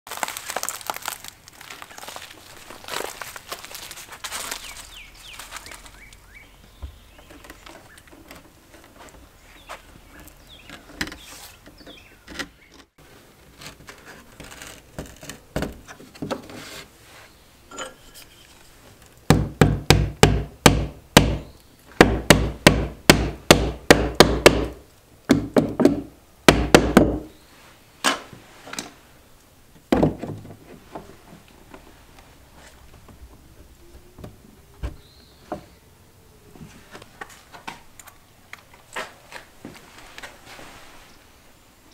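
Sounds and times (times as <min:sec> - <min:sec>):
hammer striking wood: 0:19.3 - 0:27.3.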